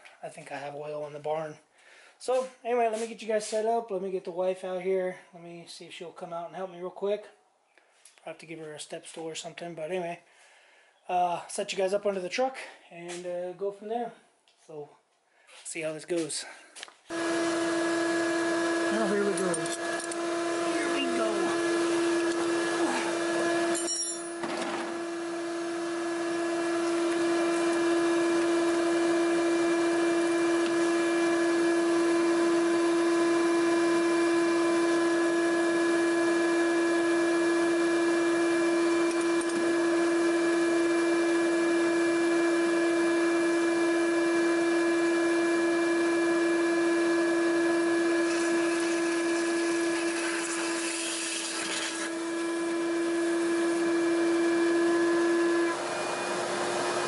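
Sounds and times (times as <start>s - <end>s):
shop vac motor whining: 17.1s - 57.0s.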